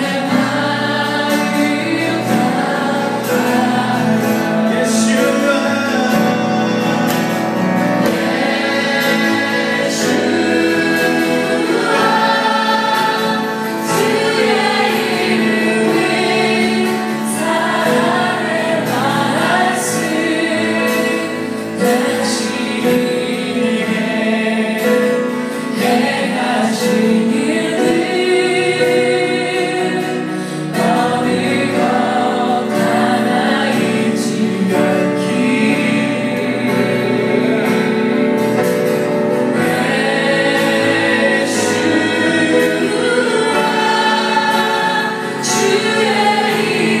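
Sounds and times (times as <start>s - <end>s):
strummed acoustic guitar: 0.0s - 47.0s
man singing: 3.3s - 7.9s.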